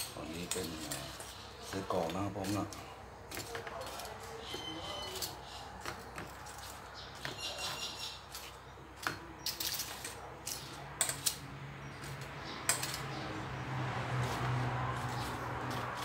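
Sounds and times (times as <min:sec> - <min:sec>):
metal tongs clinking on steel bowl: 0:00.0 - 0:11.4.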